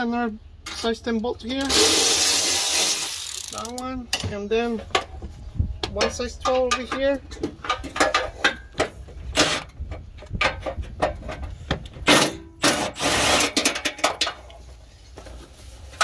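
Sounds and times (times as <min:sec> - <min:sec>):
socket wrench ratcheting: 0:01.6 - 0:03.8.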